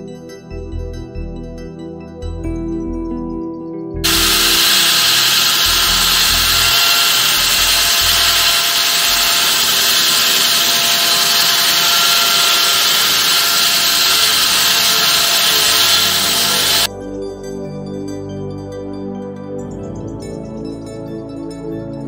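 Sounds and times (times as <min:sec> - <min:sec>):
saw blade cutting wet concrete: 0:04.0 - 0:16.9.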